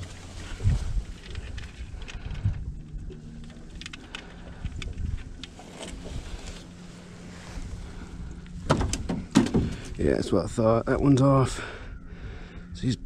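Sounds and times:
wind on microphone: 0.0 - 3.3
faint low hum: 0.0 - 13.0.

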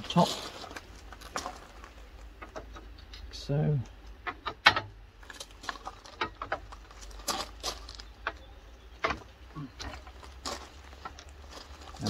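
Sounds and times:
metal frame sections knocking: 4.2 - 10.2.

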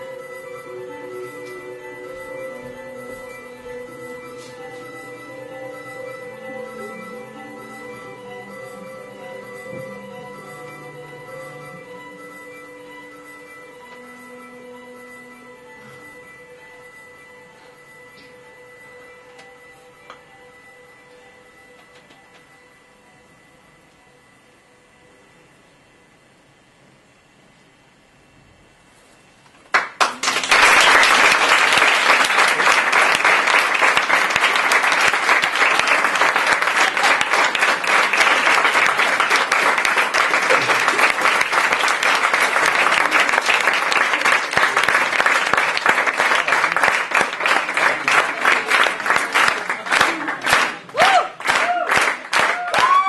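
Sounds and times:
audience applauding: 29.6 - 53.0.

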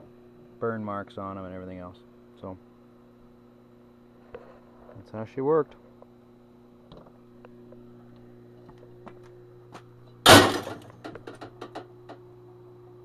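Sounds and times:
steady low hum: 0.0 - 13.0
metal parts crashing into bin: 10.3 - 10.9.

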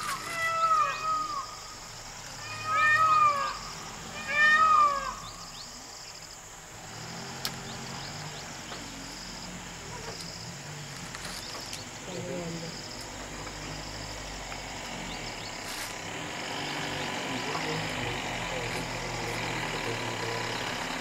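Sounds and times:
meow-like animal calls: 0.0 - 1.6, 2.4 - 5.3
faint high insect chirping: 0.0 - 21.0.

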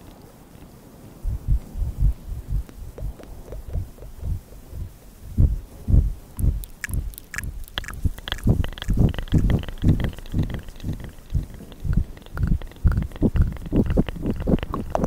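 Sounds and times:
soft mouth thumps and puffs: 1.3 - 15.0
wet tongue and lip clicks: 2.9 - 4.6, 6.4 - 15.0.

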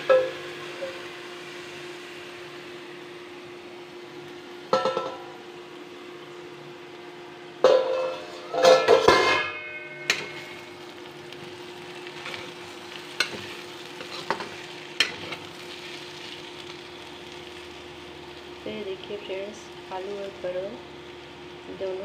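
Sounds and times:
steady hum: 0.0 - 22.0
vegetables sizzling: 0.0 - 22.0
metal spatula scraping pan: 13.1 - 15.5.

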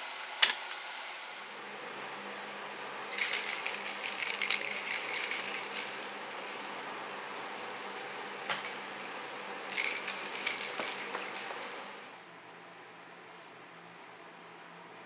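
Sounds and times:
spray can being shaken: 3.1 - 6.6, 9.4 - 11.7.

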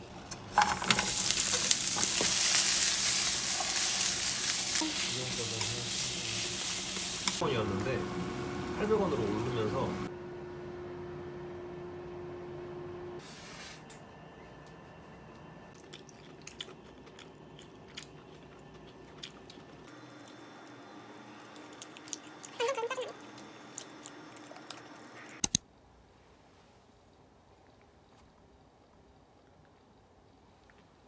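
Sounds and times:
chewing crispy food: 15.8 - 20.4, 21.4 - 25.3.

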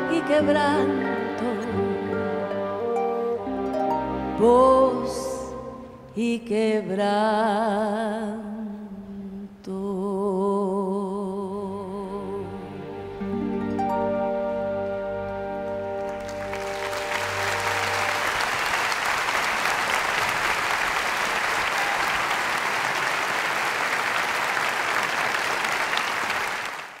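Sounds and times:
audience applause: 16.0 - 27.0.

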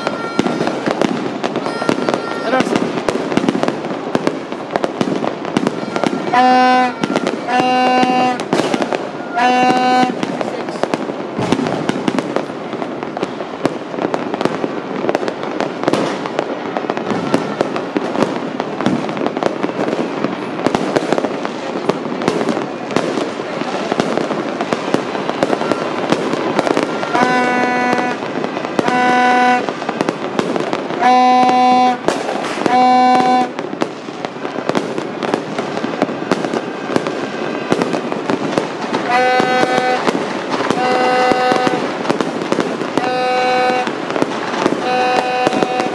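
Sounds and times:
firework bangs: 0.0 - 45.9
fireworks crackling and popping: 0.0 - 45.9
horn honking: 5.6 - 10.4, 25.4 - 29.8, 31.0 - 33.6, 39.0 - 42.0, 43.0 - 44.0, 44.7 - 45.9.

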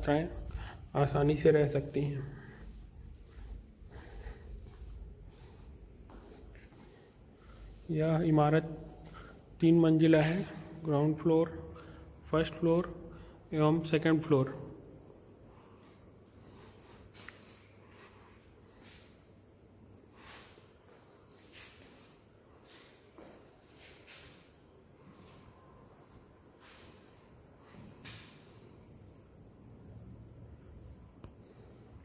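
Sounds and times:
crickets trilling: 0.0 - 32.0.

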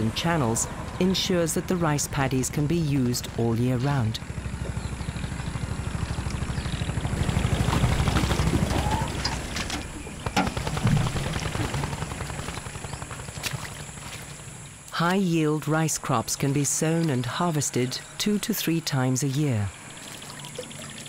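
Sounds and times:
tractor engine chugging: 0.1 - 14.6.

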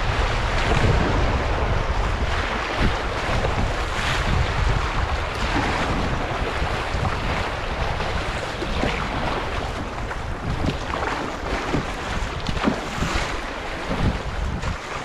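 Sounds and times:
wind buffeting microphone: 0.0 - 15.0
paddle strokes splashing: 4.6 - 15.0.

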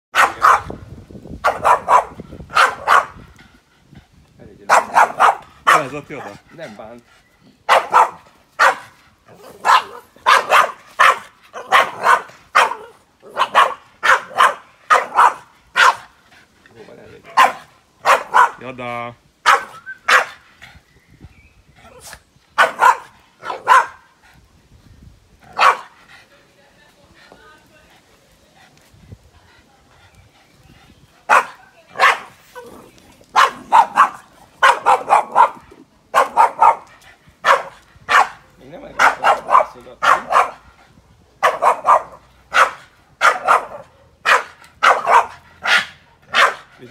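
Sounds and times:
dog barking: 0.1 - 0.8, 1.4 - 3.2, 4.7 - 6.4, 7.7 - 16.1, 17.3 - 18.6, 19.4 - 20.4, 22.6 - 24.1, 25.5 - 26.0, 31.3 - 32.4, 33.3 - 38.4, 39.0 - 40.6, 41.4 - 46.7.

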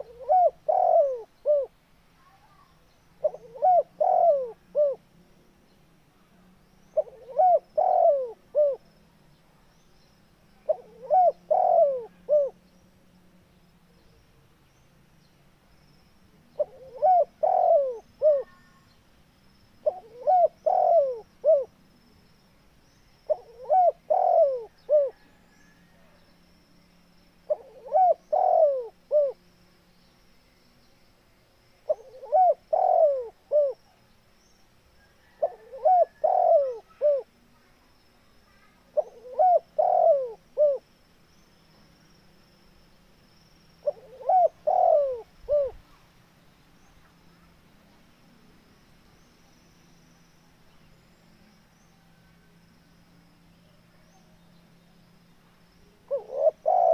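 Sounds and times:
dove cooing: 0.0 - 1.7, 3.2 - 5.0, 7.0 - 8.8, 10.6 - 12.6, 16.5 - 18.7, 19.8 - 21.7, 23.3 - 25.4, 27.5 - 29.4, 31.9 - 33.8, 35.1 - 37.3, 39.0 - 40.8, 43.8 - 45.9, 56.0 - 56.9.

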